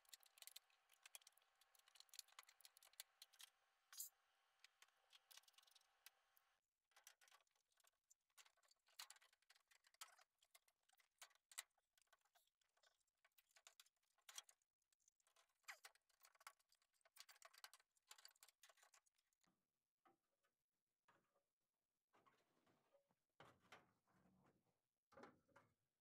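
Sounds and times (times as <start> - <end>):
faint irregular clicks: 0.0 - 6.2, 7.0 - 19.4.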